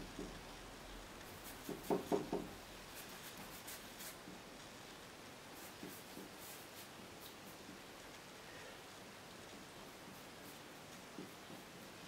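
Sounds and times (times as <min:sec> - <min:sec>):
paintbrush strokes on canvas: 0:01.2 - 0:04.4, 0:05.5 - 0:07.8, 0:09.8 - 0:12.0.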